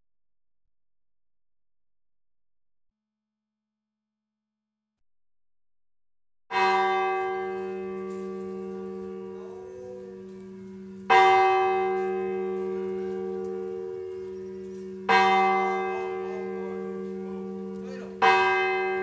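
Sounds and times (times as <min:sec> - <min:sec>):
church bell tolling: 0:06.5 - 0:19.0.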